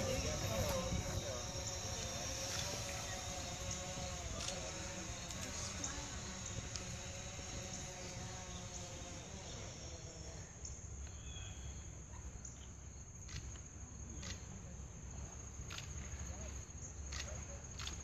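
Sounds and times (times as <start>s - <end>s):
faint murmuring voices: 0.0s - 10.7s
crickets trilling: 0.0s - 18.0s.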